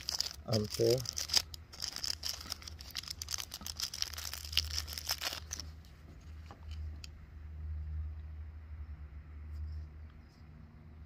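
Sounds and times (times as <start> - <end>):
plastic bag crinkling: 0.0 - 5.9.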